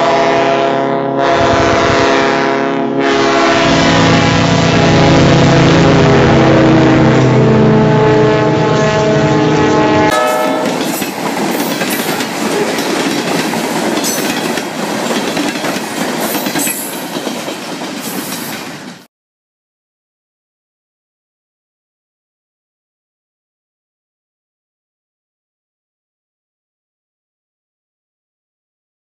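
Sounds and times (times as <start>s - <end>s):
locomotive horn: 0.0s - 11.0s
diesel engine: 3.7s - 10.2s
wheels clicking over rail joints: 10.2s - 19.0s.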